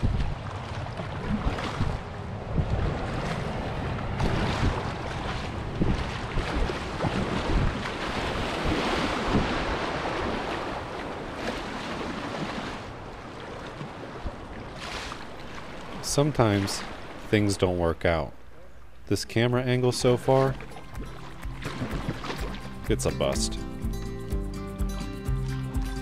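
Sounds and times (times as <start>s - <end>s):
wind buffeting microphone: 0.0s - 17.2s
water rushing and splashing: 0.0s - 24.3s.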